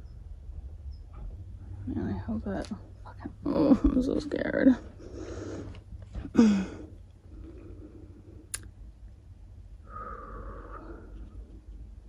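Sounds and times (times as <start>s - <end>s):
person sighing: 6.3s - 7.0s.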